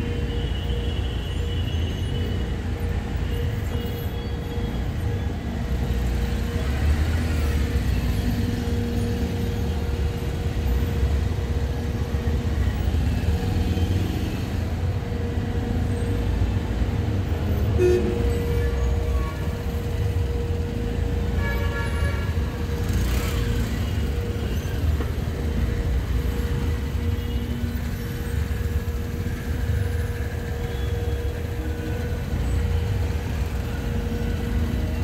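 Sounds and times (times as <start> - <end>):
rumble of passing vehicles: 0.0 - 35.0.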